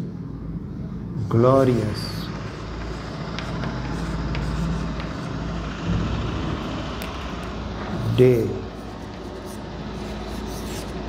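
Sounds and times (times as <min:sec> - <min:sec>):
low engine rumble: 0:00.0 - 0:11.0
chalk tapping on blackboard: 0:02.3 - 0:05.5, 0:08.8 - 0:11.0.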